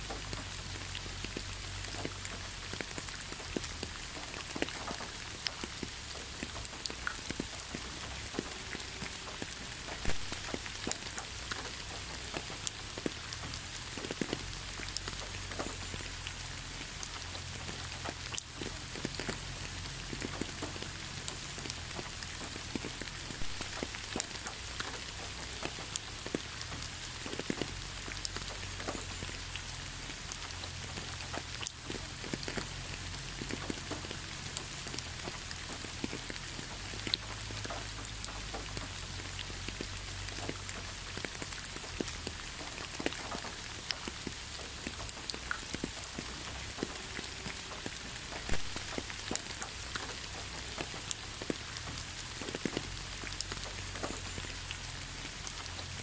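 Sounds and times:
water drips and splashes: 0.0s - 56.0s
waterfall splashing: 8.0s - 11.4s, 22.0s - 25.0s, 47.0s - 49.8s.

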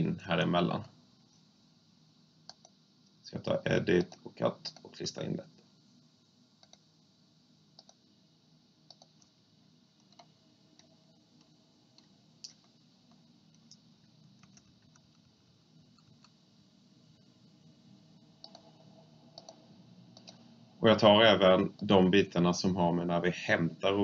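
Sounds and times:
computer mouse clicks: 2.5s - 2.8s, 6.6s - 6.8s, 7.8s - 8.0s, 8.9s - 9.3s, 10.0s - 13.8s, 14.4s - 15.3s, 18.4s - 18.7s, 19.3s - 19.6s, 20.2s - 20.5s.

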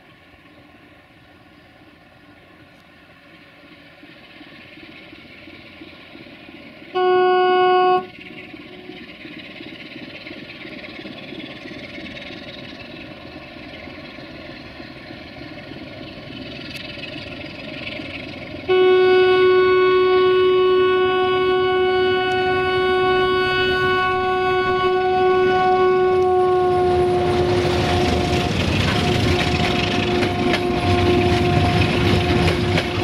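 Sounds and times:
diesel locomotive engine running: 0.0s - 33.0s
locomotive horn long tone: 6.9s - 9.1s, 18.6s - 33.0s.

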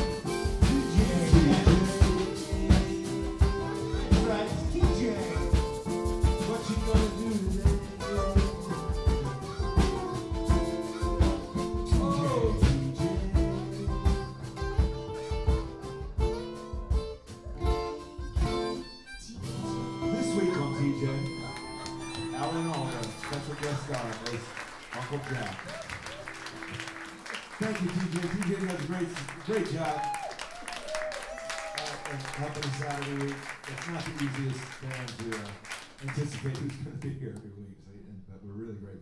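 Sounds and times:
steady percussion: 0.0s - 18.8s
harmonica with bent notes: 0.0s - 24.4s
acoustic guitar: 0.0s - 28.8s.

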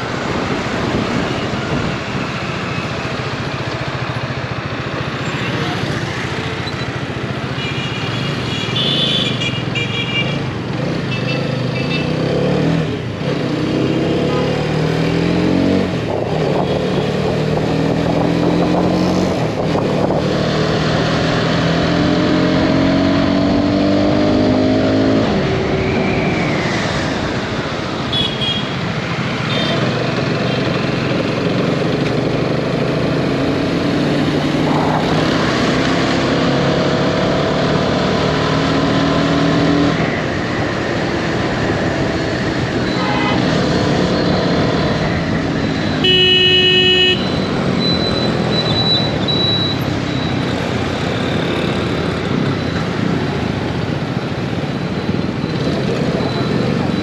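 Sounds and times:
wind and road noise: 0.0s - 57.0s
motorcycle engine revving through gears: 10.6s - 26.0s, 29.8s - 46.1s.

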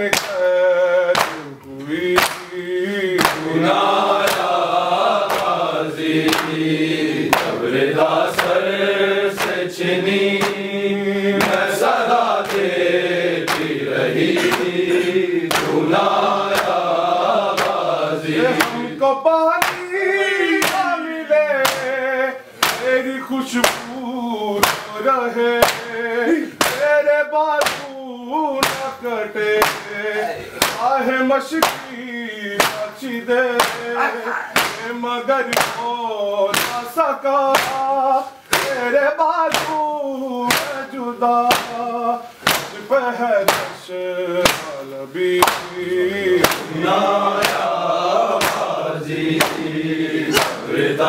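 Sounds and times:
men chanting together: 0.0s - 51.0s
hands slapping chests: 0.1s - 0.5s, 1.1s - 6.7s, 7.3s - 8.7s, 9.3s - 9.7s, 10.3s - 10.7s, 11.4s - 18.9s, 19.6s - 19.9s, 20.6s - 20.9s, 21.6s - 22.0s, 22.6s - 23.0s, 23.6s - 24.0s, 24.6s - 25.9s, 26.6s - 26.9s, 27.6s - 28.0s, 28.6s - 30.0s, 30.6s - 30.9s, 31.6s - 32.0s, 32.6s - 34.0s, 34.6s - 34.9s, 35.5s - 35.9s, 36.5s - 36.9s, 37.5s - 37.9s, 38.5s - 38.9s, 39.5s - 39.9s, 40.5s - 40.9s, 41.5s - 42.9s, 43.5s - 49.7s, 50.3s - 50.8s.

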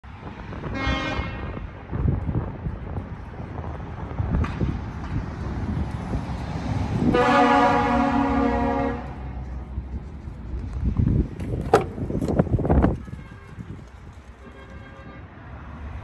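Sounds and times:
vehicle horn: 0.7s - 1.6s, 7.1s - 9.4s, 12.9s - 13.8s, 14.4s - 15.4s.

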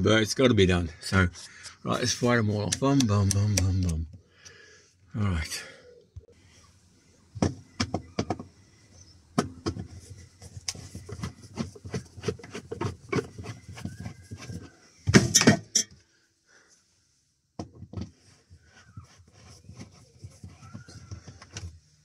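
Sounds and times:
handling noise: 17.6s - 22.0s.

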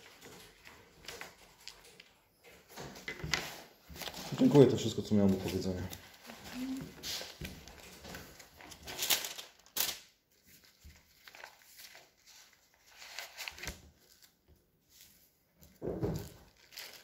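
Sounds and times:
faint shuffling: 3.9s - 7.5s.

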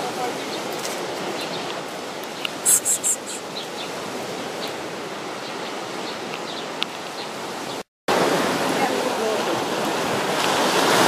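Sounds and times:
sea surf: 0.0s - 11.0s
small birds chirping: 1.3s - 4.0s, 5.4s - 7.8s.

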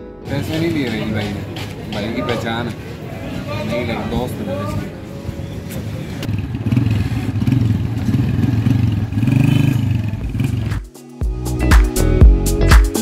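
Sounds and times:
music with steady beat: 0.0s - 2.5s, 10.5s - 13.0s
motorcycle engine revving: 4.6s - 10.9s.

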